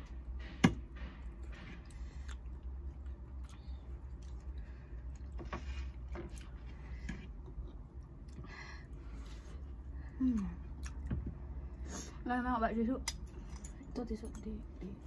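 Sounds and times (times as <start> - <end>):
low steady hum: 0.0 - 15.0
chewing noodles: 1.8 - 8.4.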